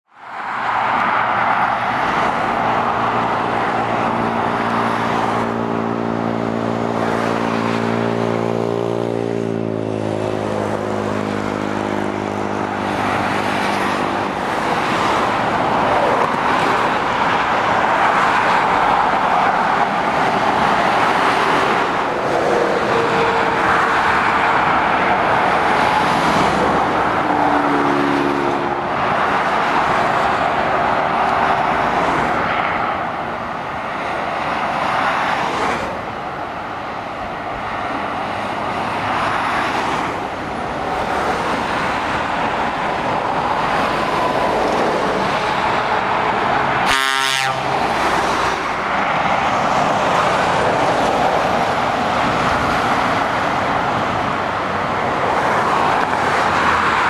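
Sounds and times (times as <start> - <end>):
road traffic tyre noise: 0.0 - 57.0
heavy diesel engine droning: 44.3 - 52.6.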